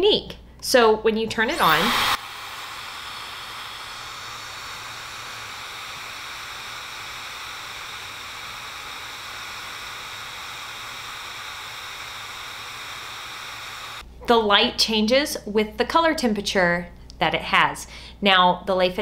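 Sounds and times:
hair dryer running: 1.3s - 14.0s.

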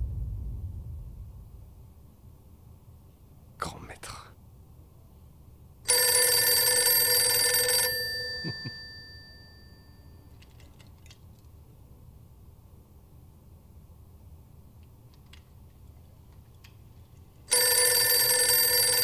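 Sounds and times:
bell ringing: 5.9s - 10.2s.

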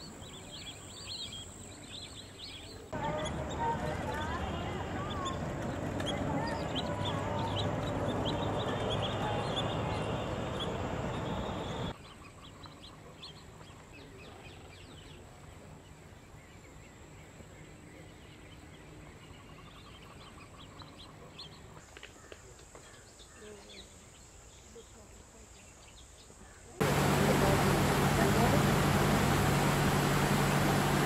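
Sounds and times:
many birds calling: 0.0s - 15.3s, 26.4s - 31.0s
faint bird chirps: 0.0s - 26.7s.

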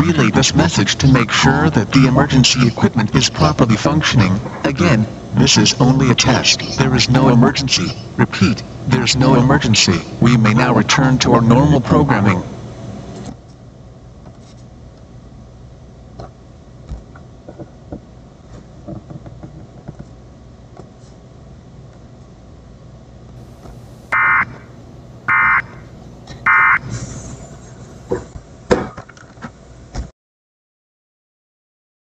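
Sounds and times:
tape hiss and hum: 23.4s - 28.3s
alert data tone bursts: 24.0s - 24.6s, 25.3s - 25.8s, 26.5s - 26.9s.

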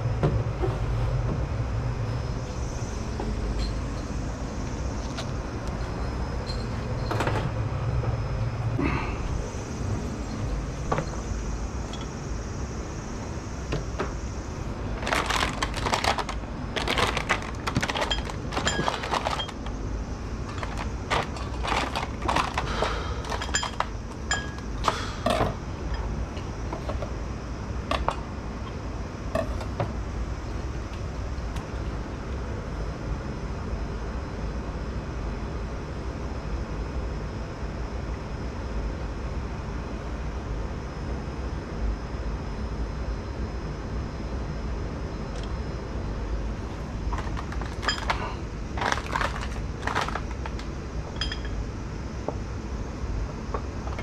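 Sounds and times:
steady low hum: 0.0s - 54.0s
kitchen utensils and bowls clinking: 16.9s - 19.6s, 20.5s - 24.6s.

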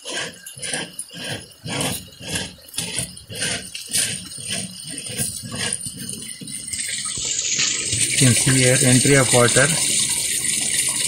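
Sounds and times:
plastic screw cap rattling and scraping: 0.0s - 7.2s.

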